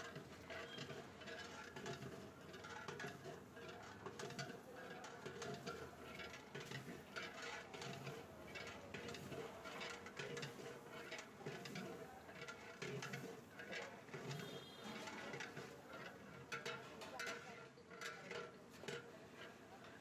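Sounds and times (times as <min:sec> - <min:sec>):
metal ladle scraping a pot: 0:00.4 - 0:03.4, 0:05.3 - 0:16.6.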